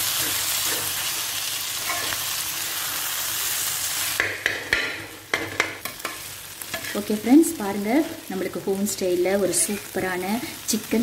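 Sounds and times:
food sizzling on a griddle: 0.0 - 11.0
metal spoon scraping a griddle: 1.8 - 2.2.

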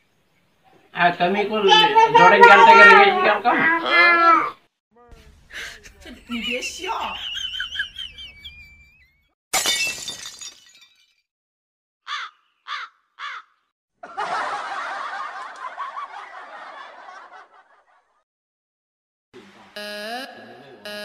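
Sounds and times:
laughter: 5.5 - 9.3, 14.0 - 18.2.

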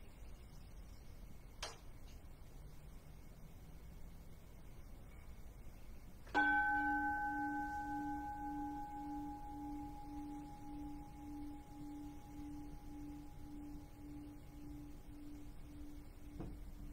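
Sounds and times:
bowl bell ringing: 6.3 - 16.9.

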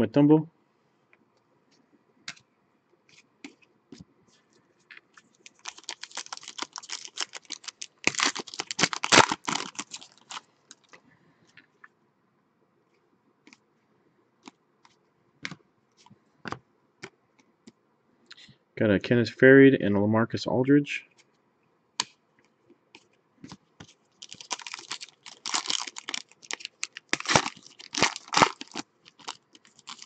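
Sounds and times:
trading cards clicking and rustling: 4.9 - 11.0, 22.9 - 30.0.

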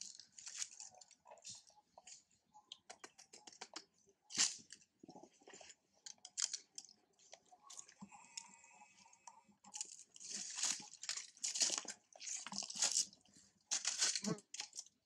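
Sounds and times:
monkeys crunching dry leaves: 0.0 - 1.7, 5.6 - 6.9, 9.7 - 14.9.

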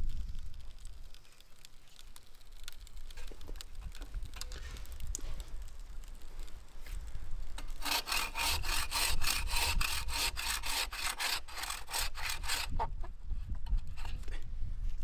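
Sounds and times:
bow saw cutting branch: 7.6 - 12.9.

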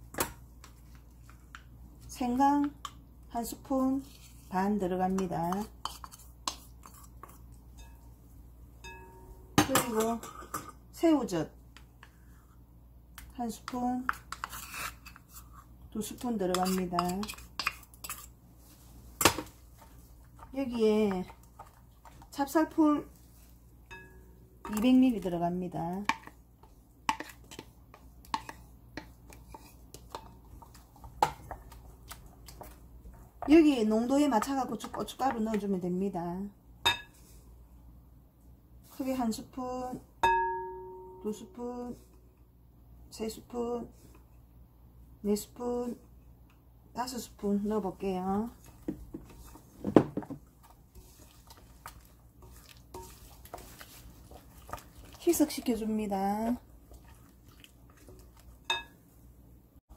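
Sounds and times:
spoon tapping and scraping: 5.1 - 8.1, 8.8 - 10.7, 13.2 - 15.5, 16.5 - 18.3, 19.2 - 22.3, 23.9 - 25.0, 26.0 - 33.6, 48.6 - 59.0
spoon tapping glass bowl: 8.8 - 9.9, 23.9 - 24.8, 40.2 - 41.3
spoon knocking glass bowl: 40.2 - 41.2.

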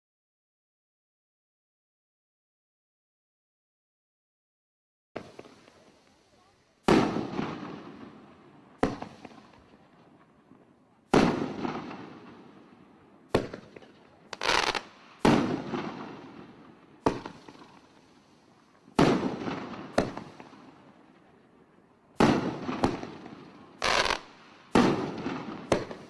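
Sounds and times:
fireworks bangs: 5.2 - 26.0.

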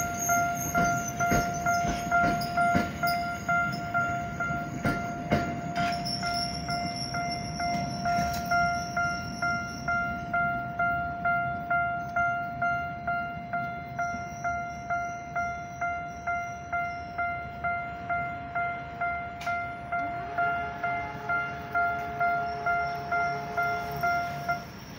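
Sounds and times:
train wheels clicking over rail joints: 0.0 - 12.6.

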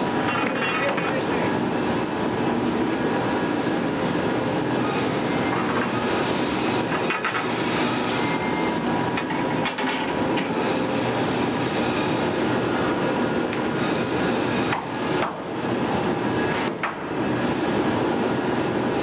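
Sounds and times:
industrial furnace noise: 0.0 - 19.0.

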